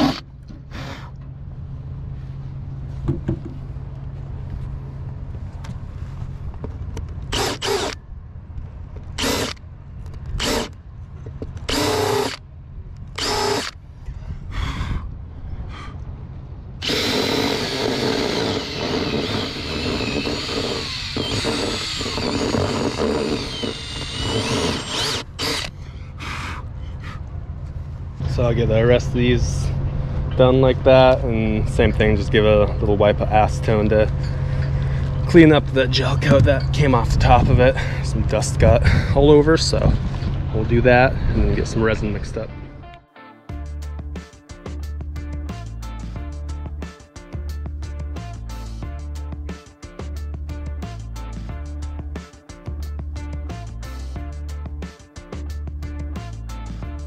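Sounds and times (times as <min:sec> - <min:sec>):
drill cutting into fiberglass: 0:07.3 - 0:08.0, 0:09.2 - 0:09.6, 0:10.4 - 0:10.7, 0:11.7 - 0:12.4, 0:13.2 - 0:13.8, 0:16.8 - 0:25.7.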